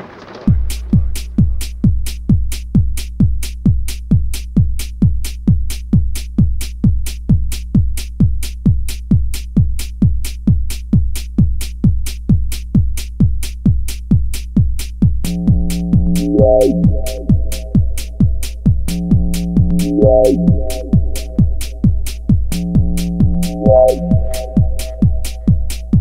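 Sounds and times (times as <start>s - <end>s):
kick drum beat: 0.5s - 26.0s
hi-hat ticks: 15.2s - 26.0s
held bass note: 15.3s - 26.0s.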